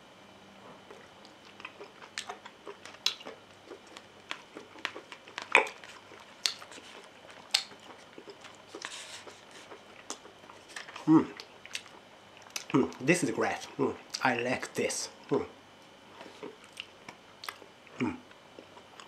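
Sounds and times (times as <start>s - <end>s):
chewing with lip smacks: 0.8s - 14.3s, 16.2s - 19.0s.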